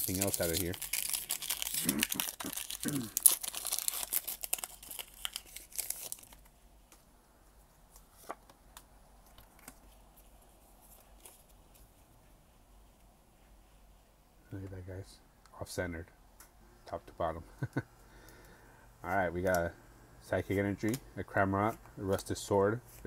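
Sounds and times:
foil wrapper tearing and crinkling: 0.0s - 6.5s
faint clicks of cards handled: 20.8s - 21.1s.

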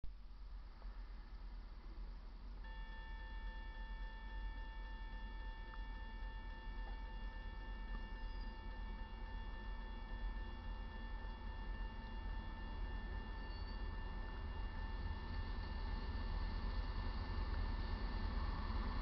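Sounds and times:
crossing warning bell ringing: 7.8s - 15.0s.

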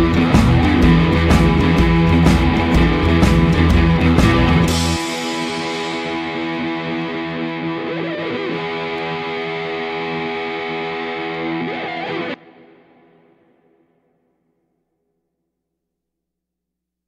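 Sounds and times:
held music chord: 0.0s - 11.6s.

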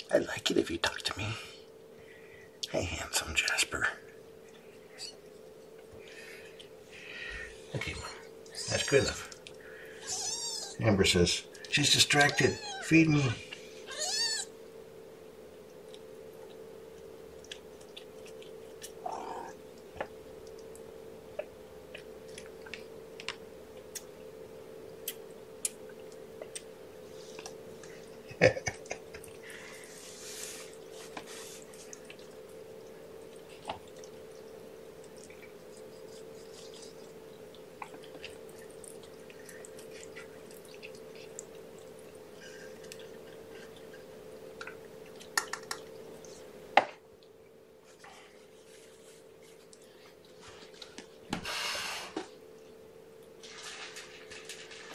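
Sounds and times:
steady low hum: 0.0s - 54.9s
kitten feeding clicks: 44.6s - 46.0s.

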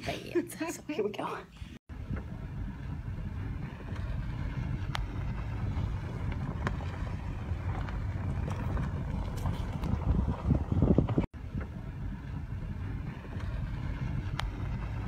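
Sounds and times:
car driving rumble: 1.9s - 15.0s
wind buffeting microphone: 1.9s - 15.0s.

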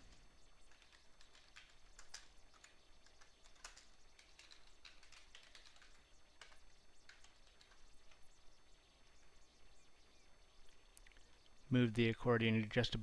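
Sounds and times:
faint keyboard typing: 0.0s - 8.4s.

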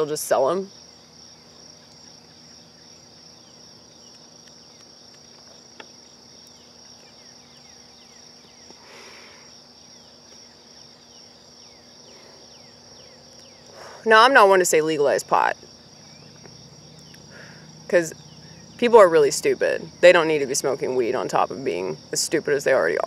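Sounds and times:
insect chorus trilling: 0.0s - 23.0s
breathy exhale: 8.8s - 9.5s, 13.7s - 14.1s, 17.3s - 17.7s.

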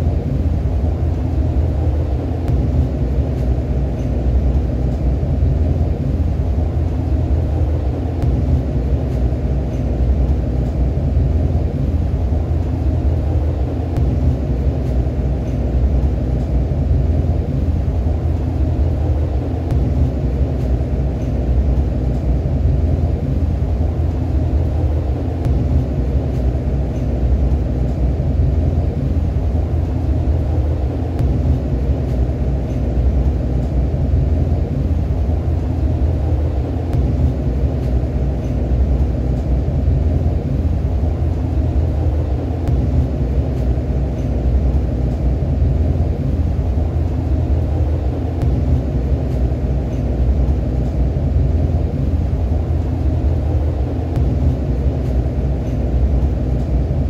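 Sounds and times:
train rumbling on track: 0.0s - 57.0s.

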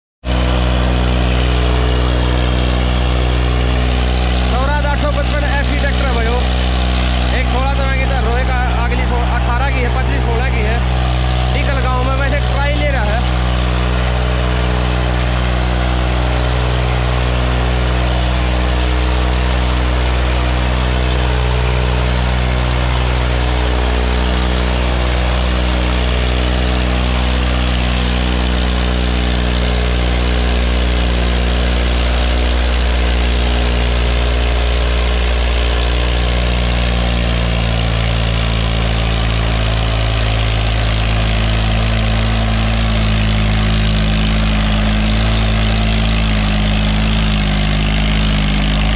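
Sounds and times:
tractor diesel engine running: 0.2s - 48.9s.

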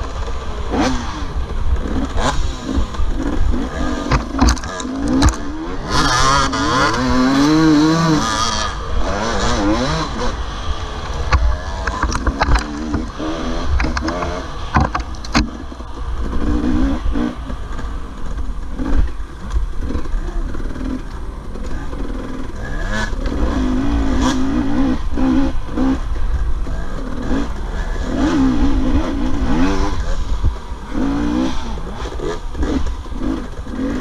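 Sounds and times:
dirt bike engine revving: 0.0s - 34.0s
knocks and clatter of bike: 0.0s - 34.0s.

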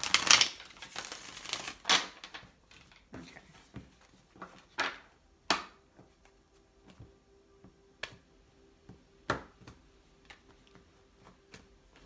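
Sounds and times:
faint steady hum: 2.5s - 12.0s.

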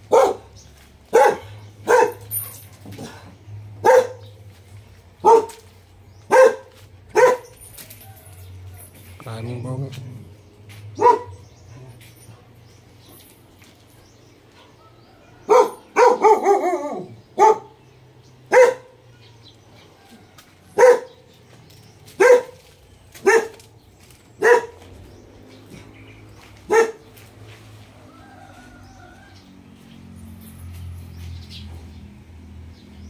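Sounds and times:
dog barking: 0.0s - 3.2s, 3.8s - 4.4s, 5.2s - 7.7s, 10.9s - 11.6s, 14.6s - 17.8s, 18.5s - 19.0s, 20.7s - 21.4s, 22.2s - 23.6s, 24.4s - 24.9s, 26.7s - 27.2s.

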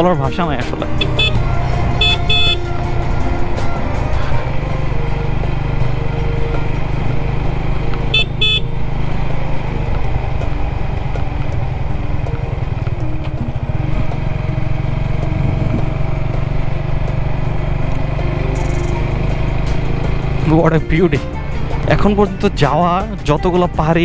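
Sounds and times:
motorcycle engine running: 0.0s - 24.0s
horn beeps: 1.0s - 2.8s, 8.1s - 8.7s.

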